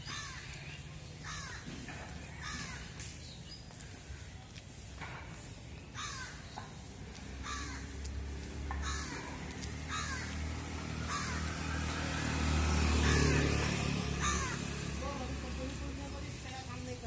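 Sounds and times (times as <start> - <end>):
crows cawing: 0.0 - 3.0, 5.9 - 15.0
motor scooter engine passing: 7.2 - 17.0.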